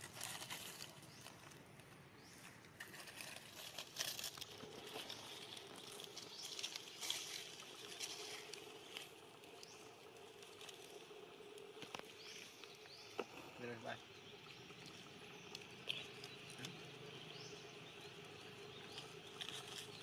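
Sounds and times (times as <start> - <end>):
dry leaves rustling and crackling: 0.0 - 13.0, 18.1 - 20.0.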